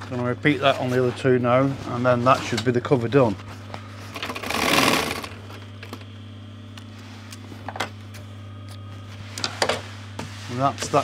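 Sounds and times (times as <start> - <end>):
sewing machine motor humming: 4.1 - 5.4.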